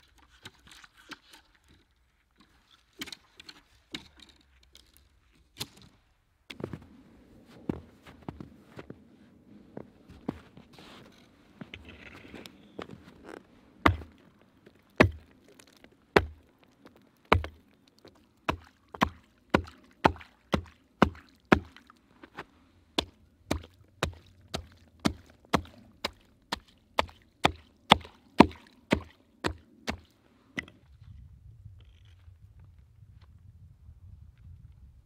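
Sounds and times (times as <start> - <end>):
hatchet chopping: 13.8 - 14.1, 15.0 - 15.3, 16.2 - 16.4.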